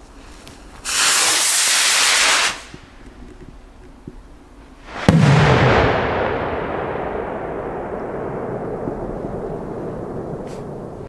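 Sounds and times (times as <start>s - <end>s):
firework rocket rushing hiss: 0.8s - 2.8s, 4.8s - 5.8s
firework burst bang: 4.8s - 11.0s.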